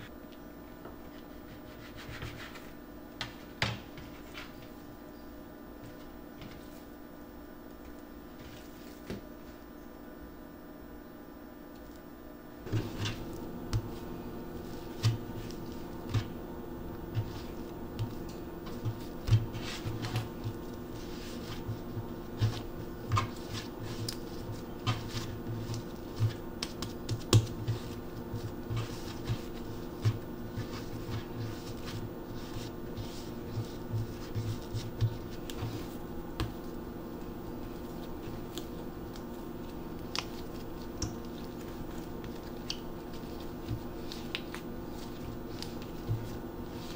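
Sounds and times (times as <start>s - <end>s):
steady low hum: 0.0s - 46.9s
dough thumping on wooden board: 24.5s - 32.0s.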